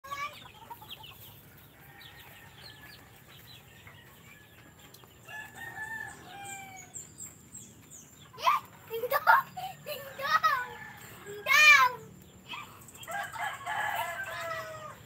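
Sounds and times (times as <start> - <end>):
chickens clucking: 0.1 - 15.0
rooster crowing: 5.3 - 7.0, 13.0 - 15.0.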